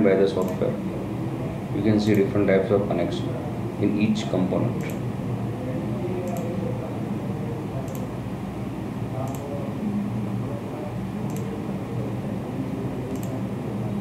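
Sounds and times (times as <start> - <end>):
computer mouse clicks: 0.4 - 0.6, 4.8 - 5.0, 6.2 - 6.5, 7.9 - 8.1, 9.2 - 9.5, 11.2 - 11.5, 13.1 - 13.4.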